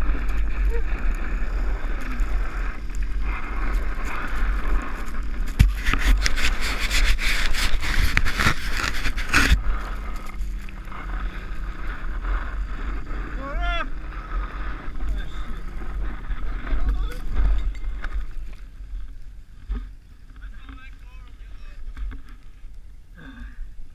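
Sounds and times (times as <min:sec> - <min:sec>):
wind on microphone: 0:00.0 - 0:23.9
lid scraping over snow: 0:03.0 - 0:13.2, 0:14.2 - 0:18.5.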